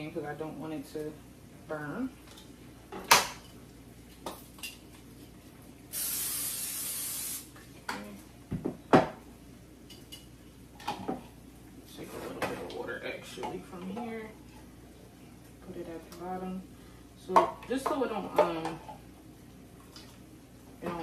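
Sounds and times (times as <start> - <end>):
aerosol spray hissing: 5.9 - 7.5.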